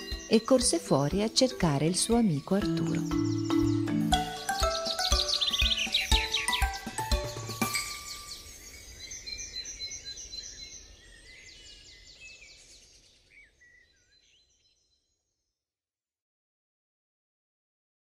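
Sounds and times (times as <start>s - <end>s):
background music: 0.0s - 8.4s
birds chirping and trilling: 0.0s - 15.5s.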